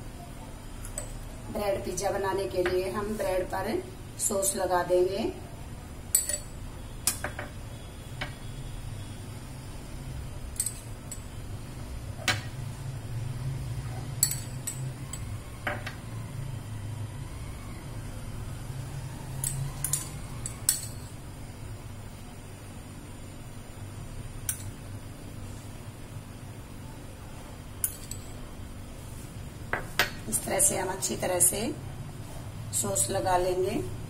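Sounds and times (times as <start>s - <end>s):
metal spoon clinking on glass: 6.1s - 7.5s, 10.6s - 11.4s, 14.2s - 15.4s, 19.4s - 21.1s, 24.5s - 24.7s, 27.8s - 28.4s.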